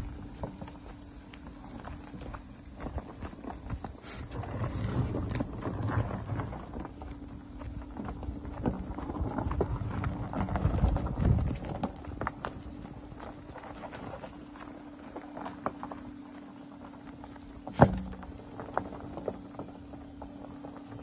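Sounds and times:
tyres crunching over gravel: 0.0s - 21.0s
wind on microphone: 2.9s - 14.1s.

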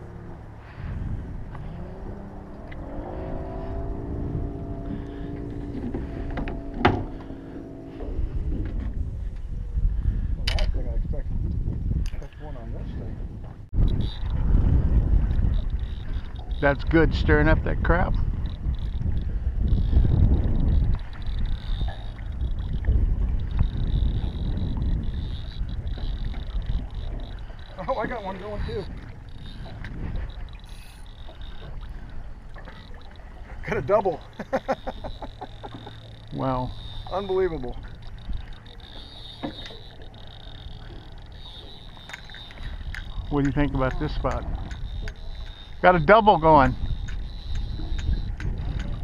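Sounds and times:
boat motor running: 0.0s - 10.7s, 13.4s - 49.0s
low rumble: 0.0s - 33.5s
small waves lapping against hull: 0.0s - 49.0s
wind buffeting microphone: 0.0s - 49.0s
faint clicks: 34.7s - 45.8s, 46.8s - 49.0s.

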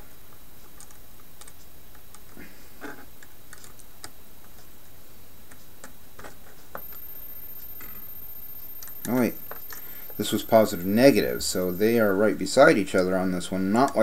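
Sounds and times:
steady low hiss: 0.0s - 14.0s
small clicks and taps of wiring: 0.6s - 4.7s.

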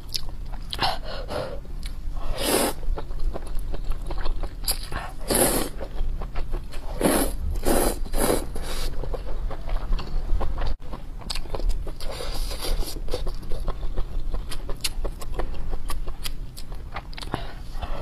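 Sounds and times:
slurping noodles: 5.2s - 5.8s, 6.9s - 8.9s.

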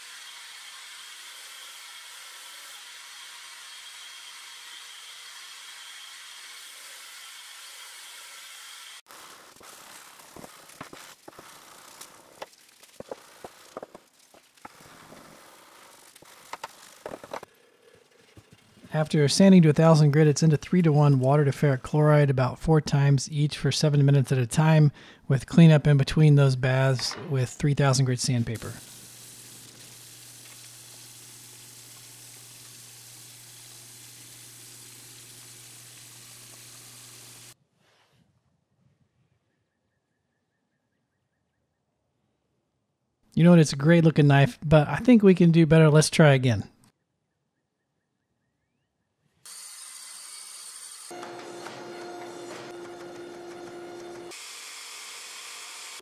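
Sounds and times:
sandpaper scratching on metal: 0.0s - 17.5s
tap water running into metal sink: 28.8s - 37.5s.

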